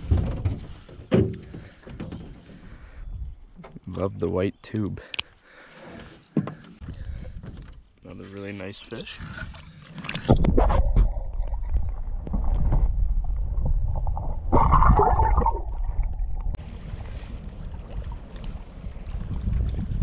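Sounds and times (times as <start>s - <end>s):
water splashing and gurgling: 8.9s - 20.0s
low underwater rumble: 10.1s - 20.0s
wind on microphone: 10.3s - 20.0s.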